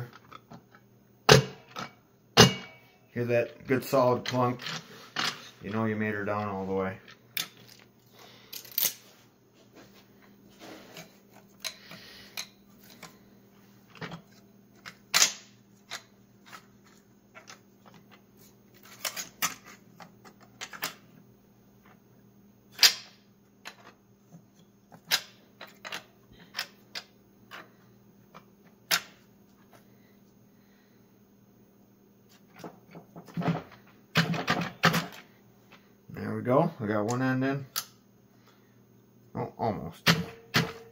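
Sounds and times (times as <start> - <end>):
faint steady hum: 0.0 - 40.9
metal parts clicking and clinking: 8.5 - 9.0.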